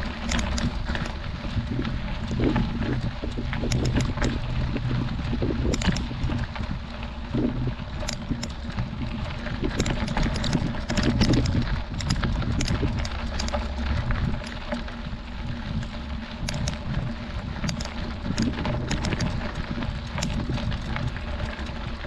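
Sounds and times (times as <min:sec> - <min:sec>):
bike clicks and rattles: 0:00.0 - 0:22.0
wind rumble on microphone: 0:00.0 - 0:22.0.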